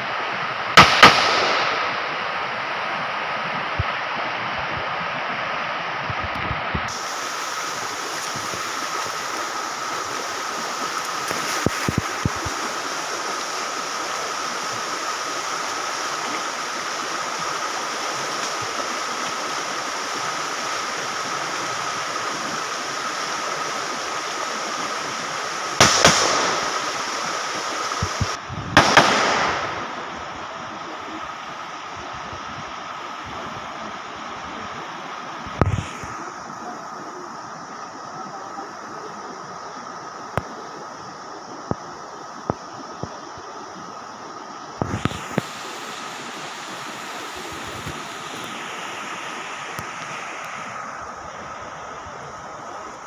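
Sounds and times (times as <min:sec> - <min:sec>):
stream rushing over rocks: 0:00.0 - 0:53.0
rifle shots: 0:00.8 - 0:02.4, 0:25.8 - 0:27.1, 0:28.8 - 0:30.2.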